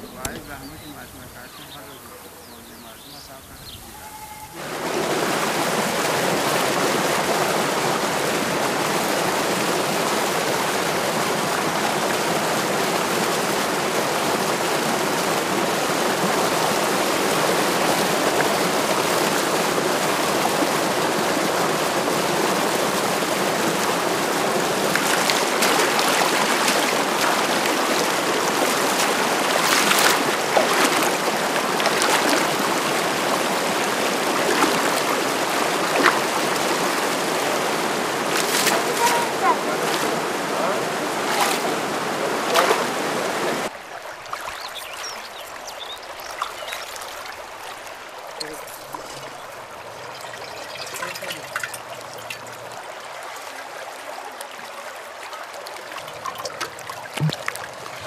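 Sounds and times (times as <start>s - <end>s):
stream rushing over rocks: 4.5s - 58.0s
pots splashing in water: 24.8s - 37.1s, 38.2s - 40.2s, 48.3s - 52.8s.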